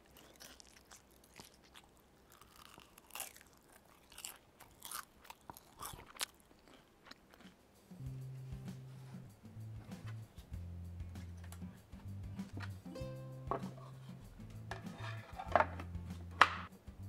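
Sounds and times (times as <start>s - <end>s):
crispy pancakes crunching: 0.0s - 7.7s.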